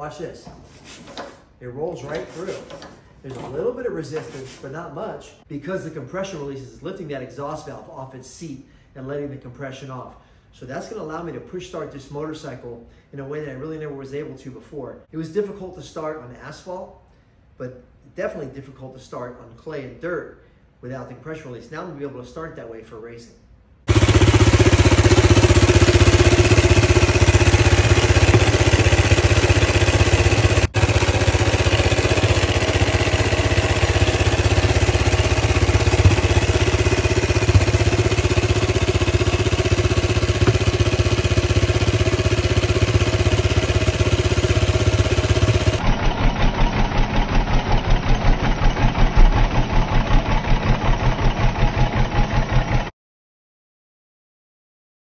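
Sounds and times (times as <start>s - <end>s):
single-cylinder motorcycle engine running: 23.9s - 52.9s.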